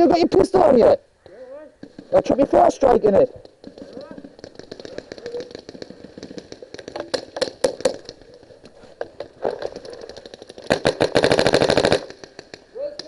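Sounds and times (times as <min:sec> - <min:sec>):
paintball markers firing: 0:03.4 - 0:08.4, 0:09.2 - 0:13.0.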